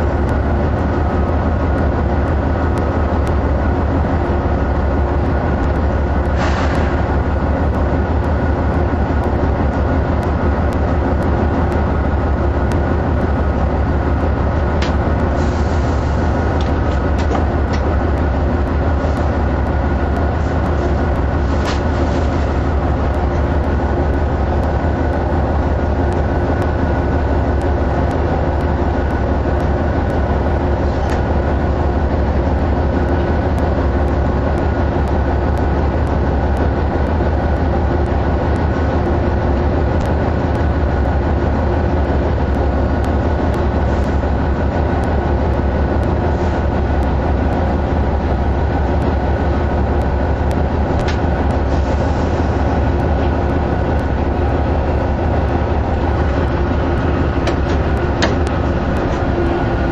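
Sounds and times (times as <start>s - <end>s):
diesel locomotive engine drone: 0.0s - 59.9s
light clicks from train: 0.0s - 59.9s.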